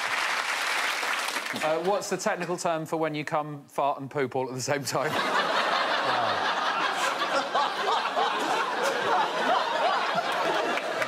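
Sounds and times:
audience laughing: 5.0 - 11.0.

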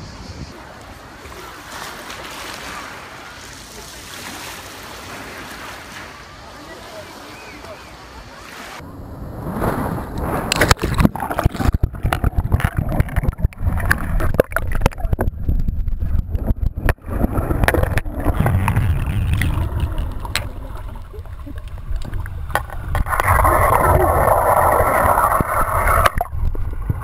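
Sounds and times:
muffled underwater rumble: 8.8 - 27.0.

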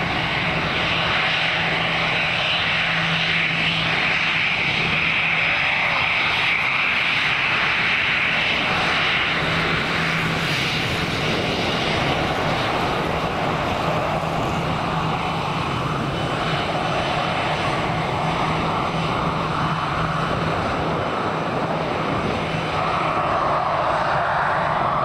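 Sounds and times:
airliner engines roaring: 0.0 - 25.0.

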